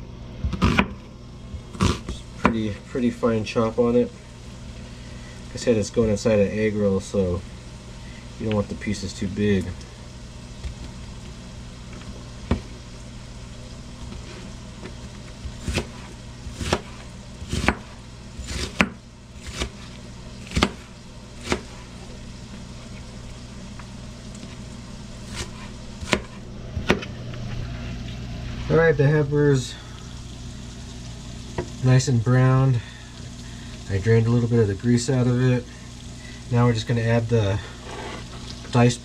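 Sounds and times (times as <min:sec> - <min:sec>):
steady low hum: 0:00.0 - 0:39.0
knife chopping on cutting board: 0:15.6 - 0:19.8, 0:20.5 - 0:21.8, 0:25.3 - 0:27.1.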